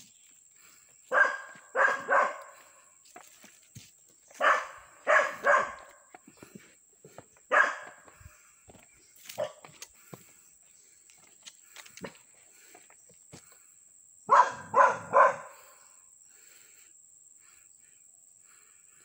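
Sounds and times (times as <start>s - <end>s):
dog barking: 1.1s - 2.8s, 4.4s - 6.2s, 7.5s - 8.1s, 9.4s - 9.7s, 14.3s - 15.8s.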